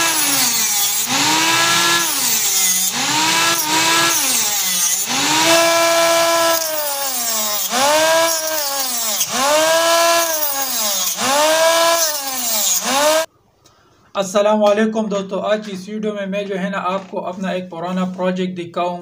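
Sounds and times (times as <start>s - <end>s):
small table saw whining: 0.0s - 13.3s.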